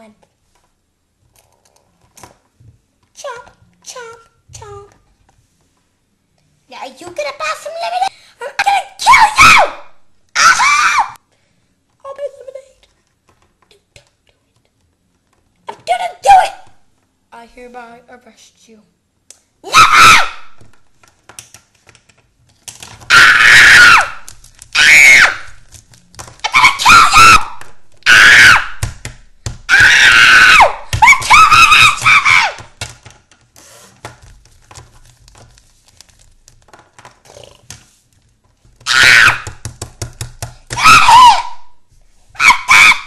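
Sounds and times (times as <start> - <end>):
child screaming: 8.6 - 9.8, 10.4 - 11.2, 19.7 - 20.5, 23.1 - 24.2, 24.8 - 25.5, 26.4 - 28.8, 29.7 - 32.7, 40.7 - 41.7, 42.4 - 43.0.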